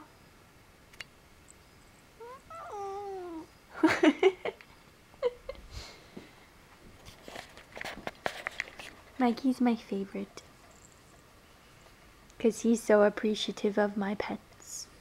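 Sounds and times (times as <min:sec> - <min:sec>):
cat meowing: 0:02.2 - 0:03.5.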